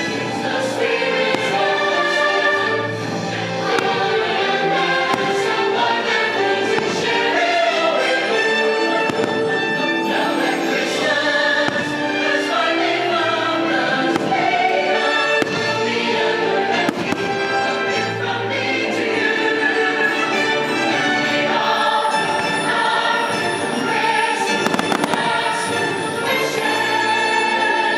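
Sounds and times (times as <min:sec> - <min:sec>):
choir singing with instruments: 0:00.0 - 0:27.9
fireworks bangs: 0:06.6 - 0:07.5, 0:09.0 - 0:09.7, 0:24.5 - 0:26.0.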